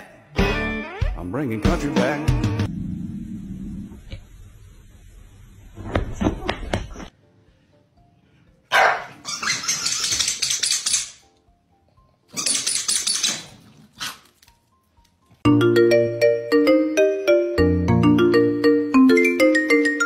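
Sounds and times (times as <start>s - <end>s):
soft background music: 7.1s - 20.0s
dog barking: 8.7s - 9.2s.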